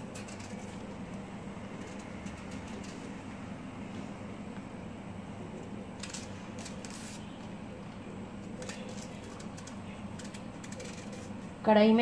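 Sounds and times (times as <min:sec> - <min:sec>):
knife scraping banana peel: 0:00.0 - 0:01.0, 0:01.7 - 0:03.2, 0:06.0 - 0:07.5, 0:08.5 - 0:11.6
steady low hum: 0:00.0 - 0:12.0.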